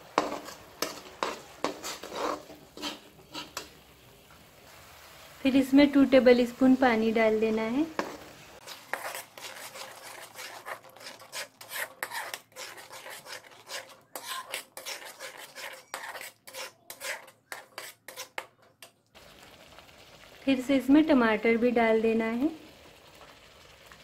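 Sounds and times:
metal spatula scraping a pan: 0.0s - 3.8s, 8.0s - 19.0s.

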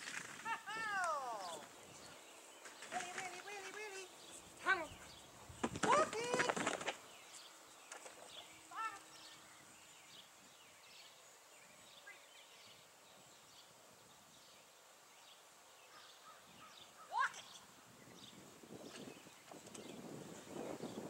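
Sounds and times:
person shouting: 0.5s - 1.7s, 5.8s - 6.6s, 8.7s - 9.1s, 17.1s - 17.5s.

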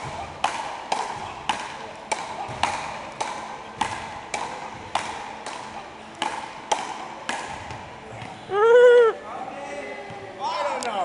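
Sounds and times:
paddles hitting rubber ball: 0.0s - 8.5s.

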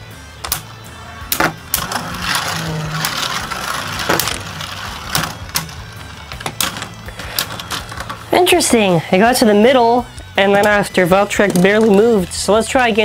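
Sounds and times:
spinning tops clacking together: 1.3s - 8.3s
spinning tops whirring: 1.3s - 8.4s.

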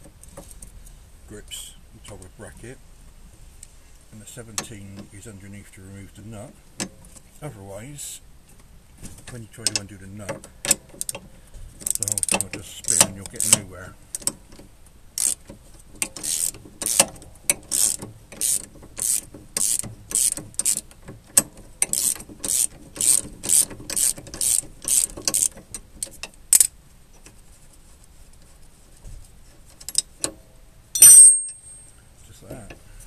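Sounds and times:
ratchet clicking: 11.8s - 14.4s, 15.2s - 26.7s
ringing metallic clink: 31.0s - 32.0s.

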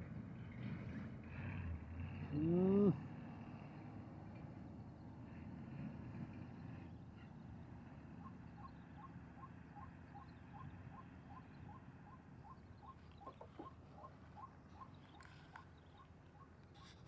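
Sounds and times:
faint rhythmic chirping: 6.4s - 17.0s.

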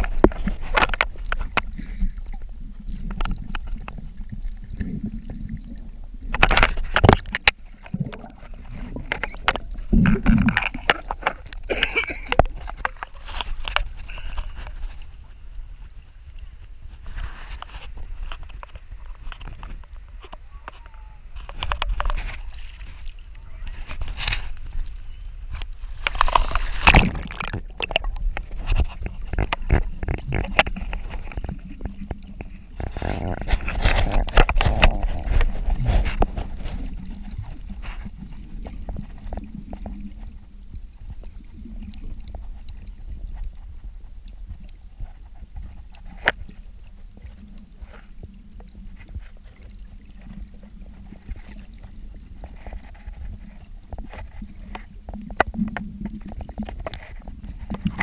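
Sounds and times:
muffled underwater sound: 0.0s - 58.0s
water splashing and sloshing: 0.0s - 58.0s
sharp underwater clicks: 6.3s - 14.8s, 25.5s - 32.6s.

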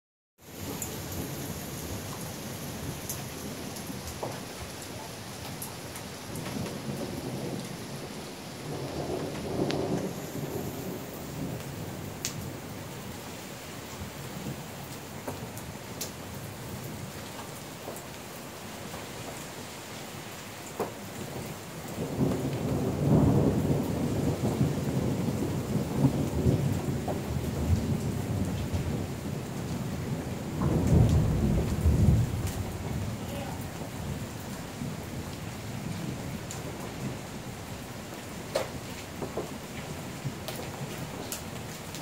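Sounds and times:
steady rain falling: 0.4s - 42.0s
thunder rumbling: 6.3s - 12.6s, 21.3s - 42.0s.

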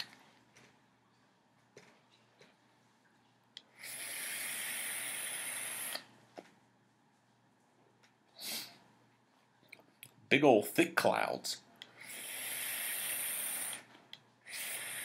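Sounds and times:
vape airy hiss: 3.7s - 6.1s, 12.0s - 15.0s
breathy exhale: 11.9s - 15.0s.

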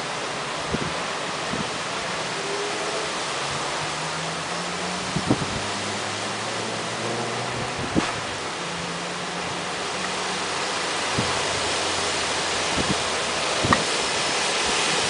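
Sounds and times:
thunderstorm rushing noise: 4.9s - 5.8s, 6.6s - 9.7s, 10.5s - 15.0s.

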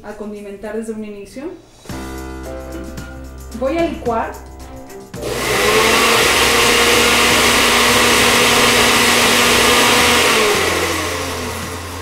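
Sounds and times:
blender motor winding down: 5.2s - 12.0s
blender running: 5.2s - 12.0s.

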